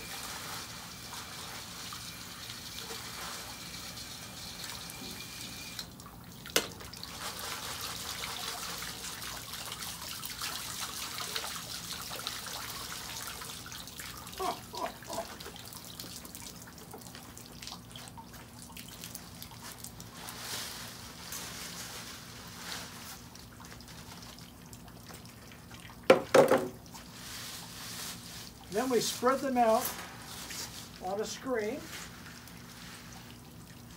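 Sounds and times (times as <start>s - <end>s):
water trickling and dripping: 5.6s - 20.4s, 23.1s - 33.9s.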